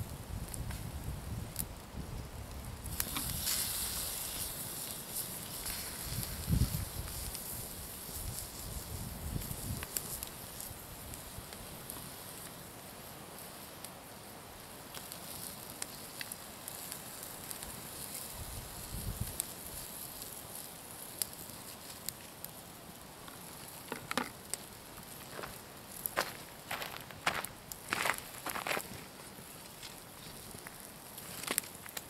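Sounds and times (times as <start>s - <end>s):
wood fire crackling: 0.0s - 32.0s
meat sizzling: 2.7s - 12.4s.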